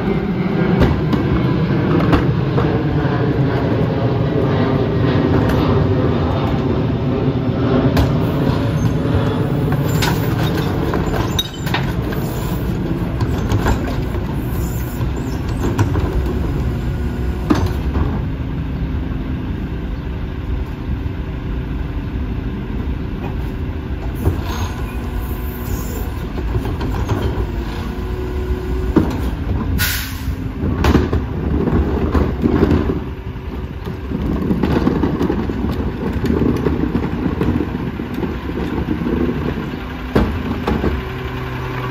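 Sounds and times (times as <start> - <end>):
diesel engine running: 0.0 - 41.9
sharp air hiss: 29.8 - 30.4.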